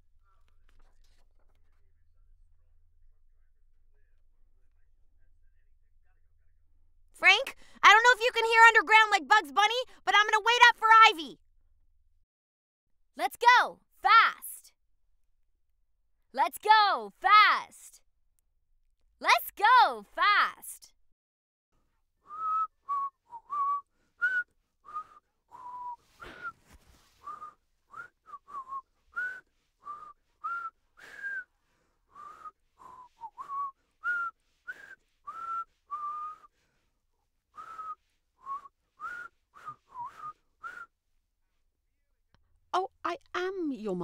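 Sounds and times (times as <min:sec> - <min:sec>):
person whistling short notes: 0:22.2 - 0:36.8, 0:37.5 - 0:41.0.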